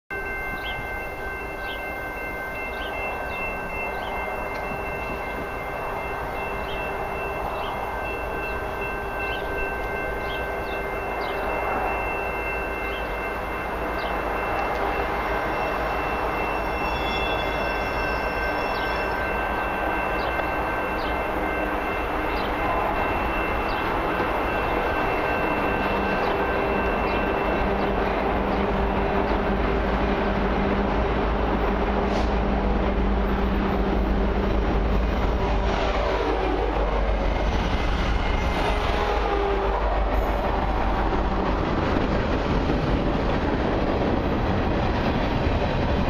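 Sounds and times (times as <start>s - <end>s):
level crossing bell ringing: 0.1s - 29.3s
freight train rumble: 0.1s - 46.0s.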